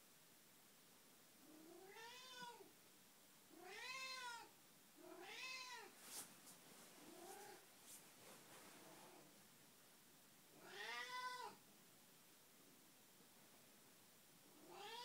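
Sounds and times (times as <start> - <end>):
cat meowing: 1.6 - 2.7, 3.6 - 6.0, 10.6 - 11.6, 14.6 - 15.0.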